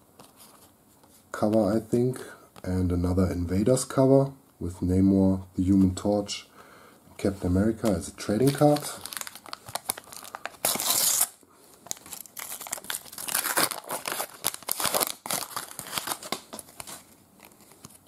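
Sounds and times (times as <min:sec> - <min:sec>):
stickers rustling: 0:07.6 - 0:11.2
wrapper crinkling: 0:07.8 - 0:18.0
sticker packet ripping open: 0:08.2 - 0:18.0.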